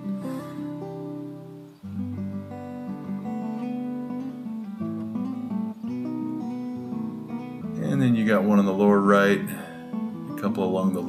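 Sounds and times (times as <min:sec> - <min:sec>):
acoustic guitar plucking: 0:00.0 - 0:11.0.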